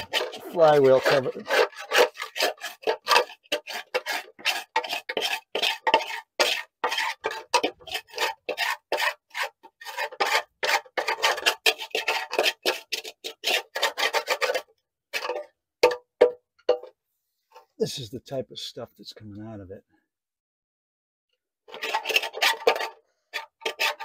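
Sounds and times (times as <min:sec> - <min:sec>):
debris scraped by hand: 0:00.0 - 0:16.0, 0:21.7 - 0:24.0.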